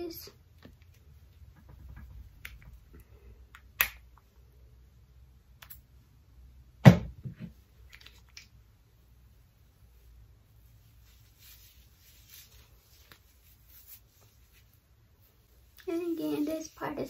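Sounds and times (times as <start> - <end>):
soft knocks and rustles: 0.6 - 2.9
thump: 6.8 - 7.5.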